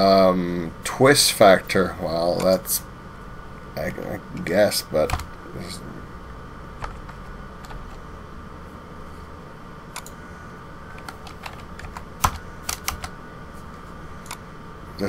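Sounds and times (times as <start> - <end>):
faint steady hum: 0.0 - 15.0
keyboard and mouse clicks: 10.9 - 13.2.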